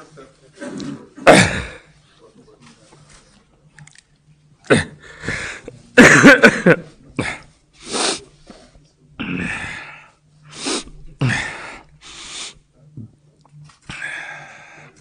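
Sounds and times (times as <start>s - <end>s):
man sobbing: 6.0s - 7.4s.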